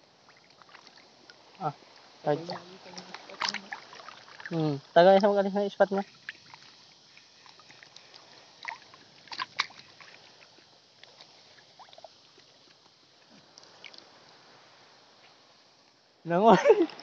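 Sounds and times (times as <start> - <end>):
water sloshing: 0.0 - 14.6
water splashes and knocks: 0.3 - 1.6, 2.5 - 5.4, 6.0 - 14.0.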